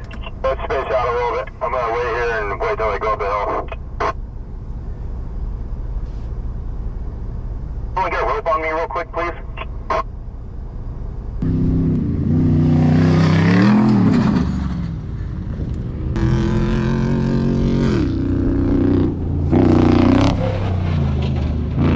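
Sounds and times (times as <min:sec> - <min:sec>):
truck engine revving under load: 0:11.4 - 0:21.9.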